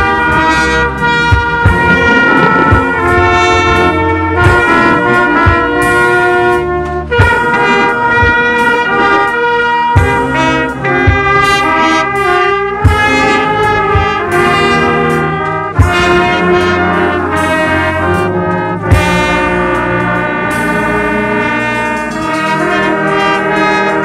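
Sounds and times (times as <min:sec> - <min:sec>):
sharp low thumps: 0:00.0 - 0:09.1, 0:15.8 - 0:17.6
brass playing chords: 0:00.0 - 0:24.0
loud close trumpet: 0:00.0 - 0:24.0.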